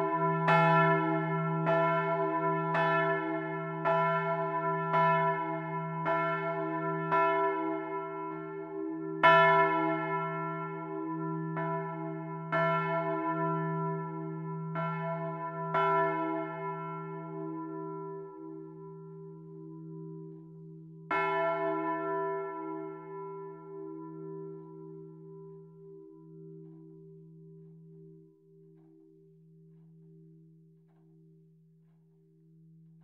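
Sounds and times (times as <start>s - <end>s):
church bell ringing: 0.0s - 30.5s.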